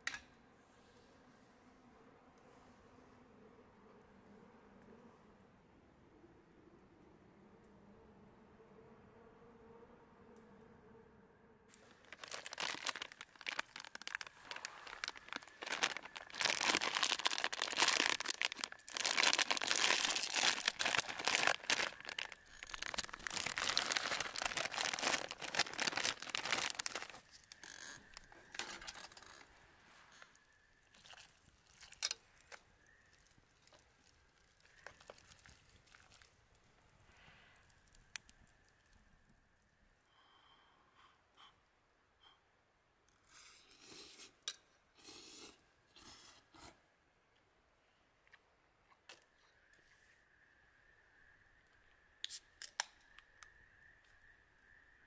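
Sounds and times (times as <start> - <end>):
plastic packet crinkling: 11.7 - 29.5, 30.9 - 32.6, 33.2 - 36.4
small clicks and rustles: 11.7 - 39.4.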